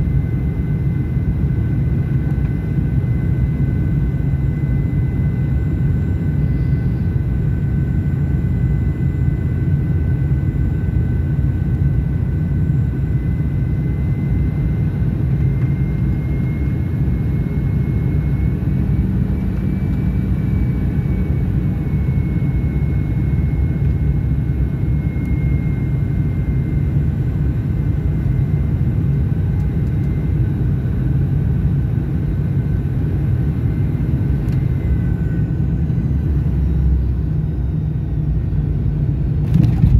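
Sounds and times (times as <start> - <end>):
airliner cabin rumble: 0.0 - 39.9
jet engine whine: 0.0 - 39.9.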